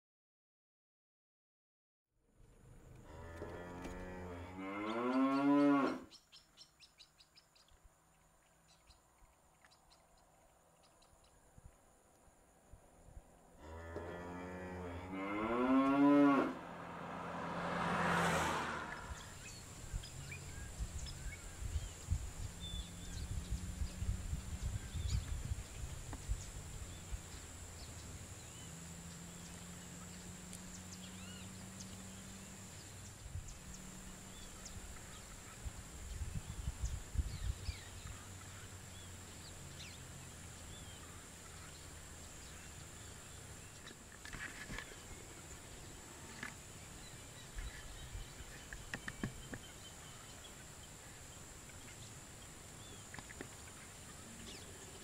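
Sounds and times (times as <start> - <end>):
cattle mooing: 3.1 - 6.1, 13.6 - 16.7.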